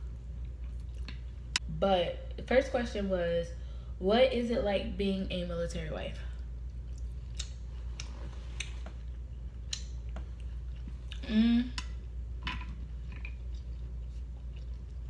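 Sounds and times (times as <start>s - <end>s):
person chewing food: 0.0s - 1.6s, 6.4s - 15.0s
wet mouth clicks and smacks: 6.7s - 8.8s, 9.6s - 10.2s
short hummed vocal sound: 11.0s - 12.0s.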